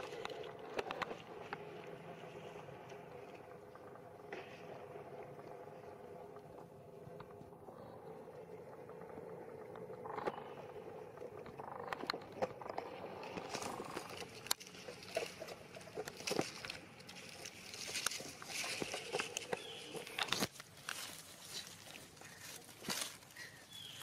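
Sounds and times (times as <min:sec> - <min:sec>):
dry leaves crackling and rustling: 0:13.2 - 0:24.0.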